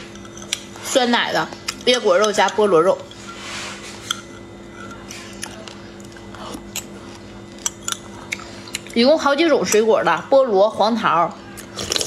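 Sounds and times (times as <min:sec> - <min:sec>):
faint steady hum: 0:00.0 - 0:12.0
spoon stirring in glass mug: 0:01.7 - 0:05.8.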